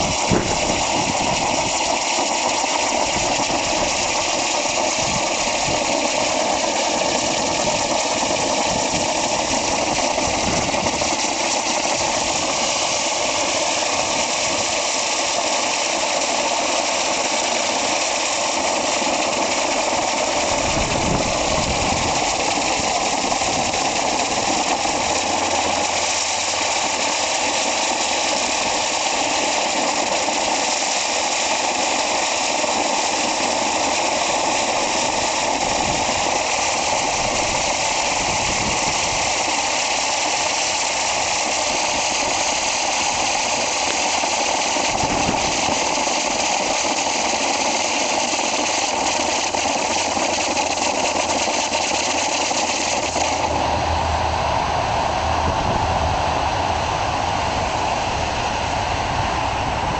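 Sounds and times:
spinning firework hissing: 0:00.0 - 0:58.8.

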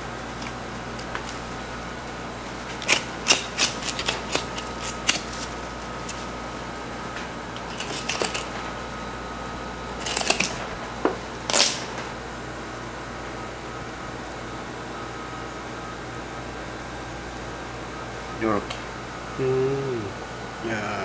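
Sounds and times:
ventilation fan hum: 0:00.0 - 0:21.0.

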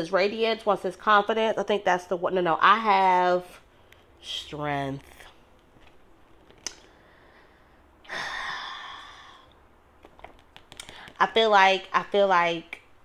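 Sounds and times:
woman sighing: 0:08.0 - 0:09.5.

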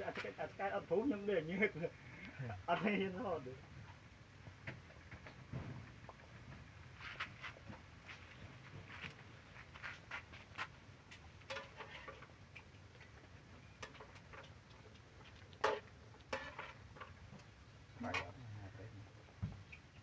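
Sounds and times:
puppies suckling clicks and smacks: 0:13.9 - 0:16.3.

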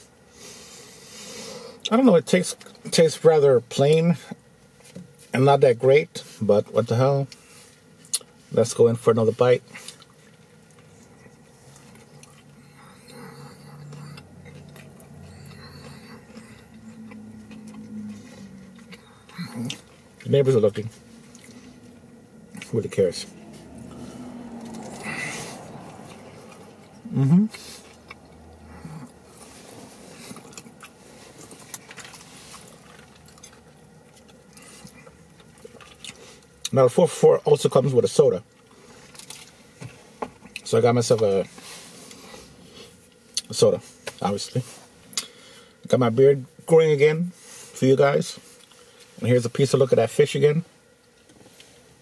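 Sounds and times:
person chewing: 0:09.7 - 0:20.3, 0:21.0 - 0:22.8, 0:23.4 - 0:36.7, 0:38.6 - 0:40.6
low hum: 0:10.6 - 0:36.0.

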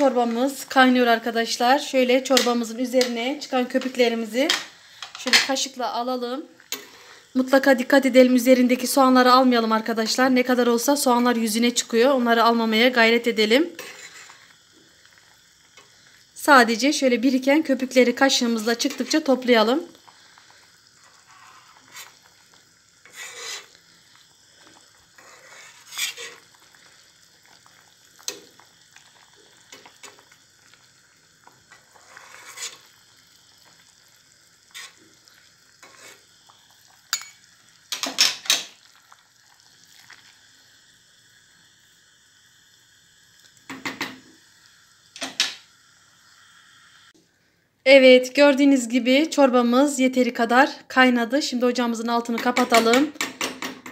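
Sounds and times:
boiling soup hiss: 0:00.0 - 0:53.9
metal spoon clinking on pot: 0:37.1 - 0:37.4.

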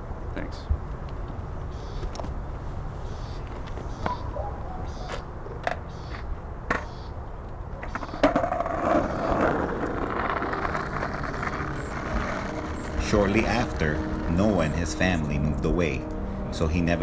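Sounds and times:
skateboard wheels rolling: 0:04.9 - 0:15.6
skateboard clacking on concrete: 0:05.0 - 0:07.0, 0:07.7 - 0:14.2
low outdoor rumble: 0:08.2 - 0:17.0.

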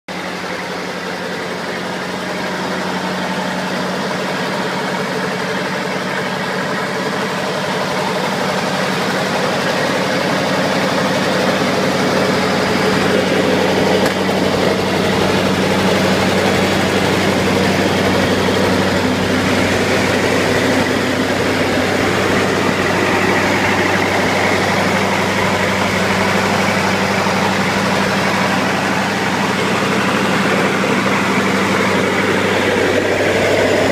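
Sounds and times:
welder engine humming: 0:09.5 - 0:33.9.

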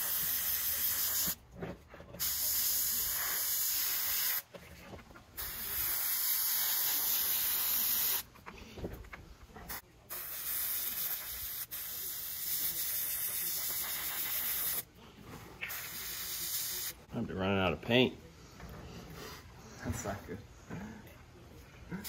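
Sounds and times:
airbrush hissing compressed air: 0:00.0 - 0:01.4, 0:02.2 - 0:04.4, 0:05.4 - 0:08.3, 0:09.7 - 0:14.8, 0:15.7 - 0:17.0.

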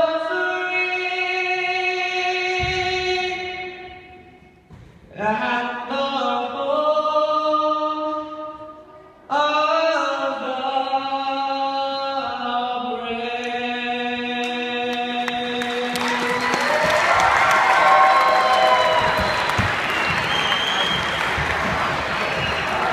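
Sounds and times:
man singing unaccompanied: 0:00.0 - 0:03.9, 0:05.1 - 0:08.4, 0:09.3 - 0:16.1
people clapping: 0:14.4 - 0:22.9.

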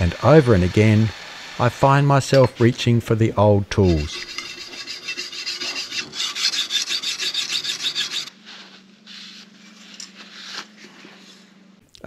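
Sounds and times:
blade sharpening strokes: 0:03.8 - 0:08.3
soft rubs: 0:03.8 - 0:11.8.

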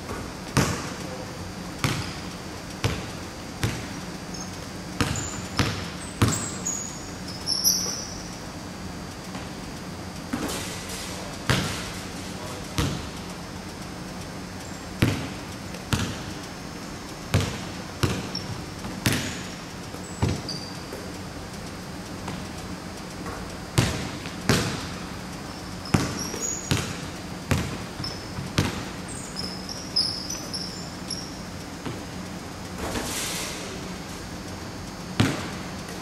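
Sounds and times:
basketballs bouncing on wood floor: 0:00.1 - 0:01.0, 0:01.8 - 0:08.2, 0:11.5 - 0:11.8, 0:12.8 - 0:13.1, 0:15.0 - 0:16.4, 0:17.3 - 0:19.6, 0:20.2 - 0:21.1, 0:23.2 - 0:25.0, 0:25.8 - 0:32.0, 0:35.2 - 0:35.7
sneakers squeaking on court: 0:01.8 - 0:08.3, 0:10.3 - 0:12.0, 0:12.8 - 0:13.2, 0:14.6 - 0:16.4, 0:17.3 - 0:21.1, 0:23.3 - 0:32.0, 0:35.2 - 0:35.6.

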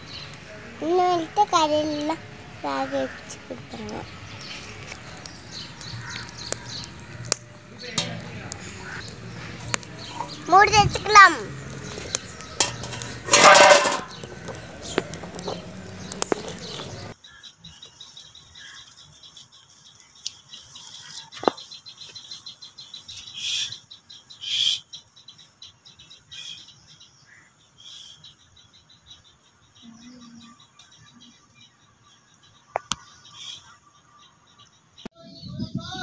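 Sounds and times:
wood fire crackling: 0:00.0 - 0:17.2
small birds chirping: 0:00.0 - 0:36.0
metal lid clanking on pot: 0:07.9 - 0:09.0, 0:12.6 - 0:15.7.

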